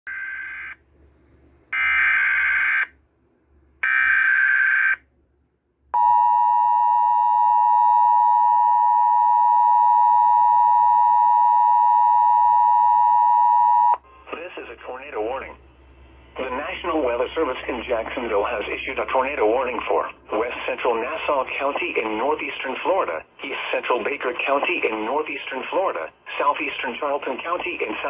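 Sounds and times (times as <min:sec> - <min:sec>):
two-tone attention signal: 0:06.0 - 0:14.0.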